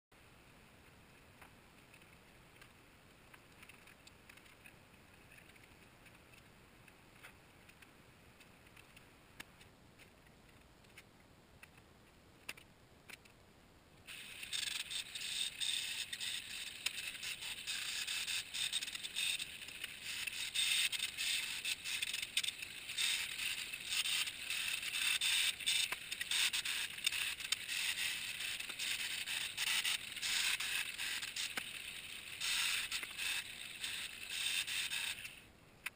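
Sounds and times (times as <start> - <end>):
welding arc crackling hiss: 14.1 - 35.9.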